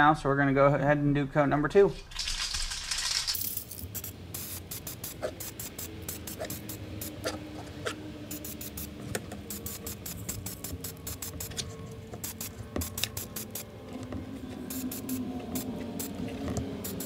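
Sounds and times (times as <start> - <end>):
spray can rattling: 2.0 - 7.2, 8.3 - 8.9, 9.5 - 11.6, 12.2 - 13.6.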